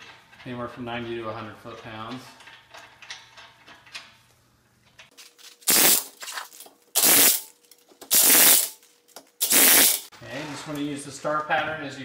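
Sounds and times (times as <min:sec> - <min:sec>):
impact wrench bursts: 0:05.6 - 0:06.2, 0:07.0 - 0:07.5, 0:08.1 - 0:08.8, 0:09.4 - 0:10.1.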